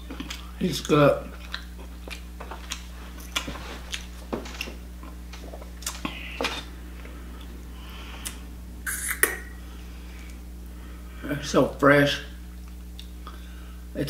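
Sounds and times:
wet chewing and smacking: 0.0s - 6.6s
steady low hum: 0.0s - 14.0s.

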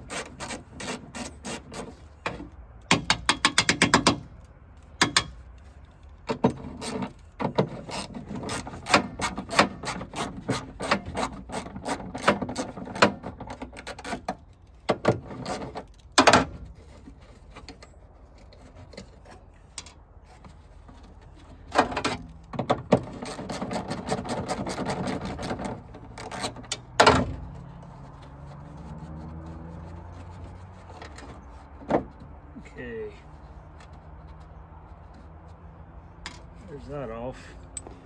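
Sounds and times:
metal knocks: 2.3s - 4.3s, 5.0s - 5.4s
metal scraping: 15.1s - 38.0s.

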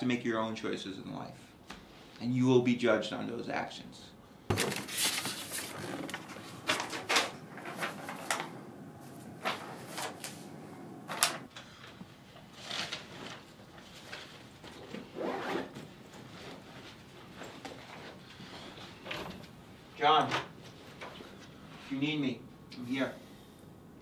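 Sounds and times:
paper rustling: 4.5s - 14.8s.

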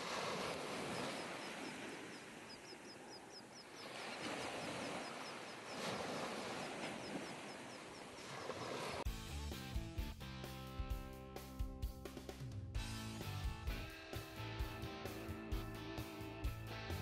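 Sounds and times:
small waves on sandy beach: 0.0s - 9.1s.

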